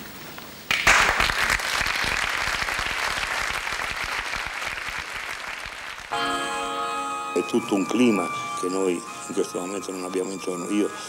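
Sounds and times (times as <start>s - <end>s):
audience applause: 0.7s - 6.8s.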